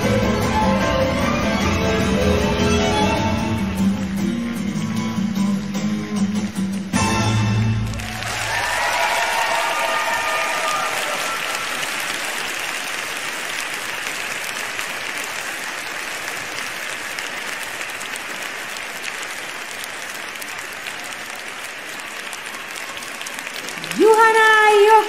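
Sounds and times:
audience applauding: 0:07.5 - 0:25.0.

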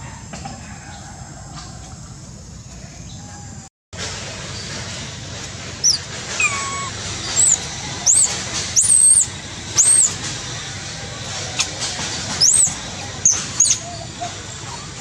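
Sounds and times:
baby monkey squealing cries: 0:05.8 - 0:10.2, 0:12.4 - 0:15.0.

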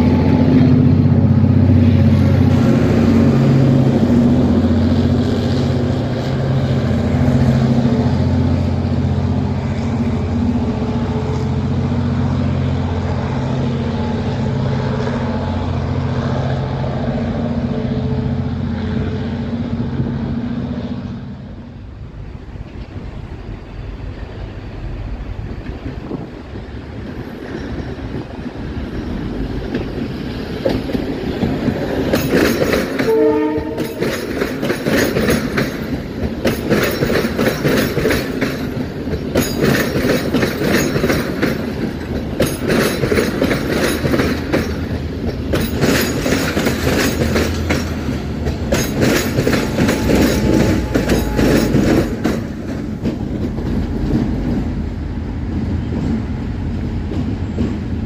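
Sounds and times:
passenger train rumbling past: 0:00.0 - 0:58.0
wheels clacking over rail joints: 0:25.4 - 0:58.0
train horn blast: 0:33.0 - 0:34.3, 0:49.6 - 0:52.3.

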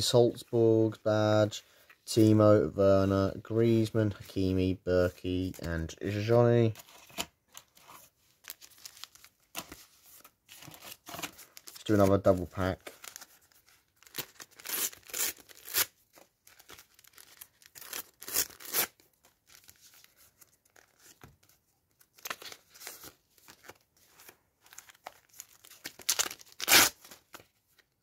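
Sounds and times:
paper packets ripping: 0:16.5 - 0:19.7, 0:24.7 - 0:27.4.

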